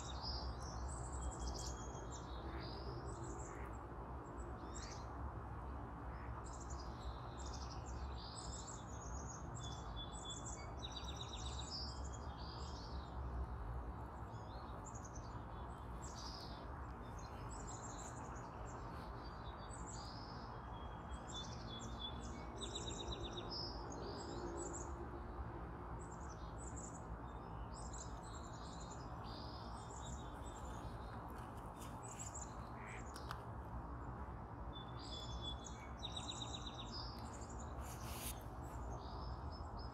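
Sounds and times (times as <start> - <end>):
small birds chirping and trilling: 34.8 - 39.9.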